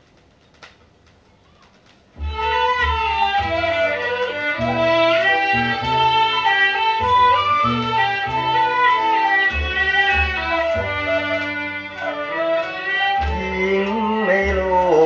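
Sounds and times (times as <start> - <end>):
vinyl surface hiss and clicks: 0.0 - 2.2
pop song with strings and bass: 12.5 - 15.0.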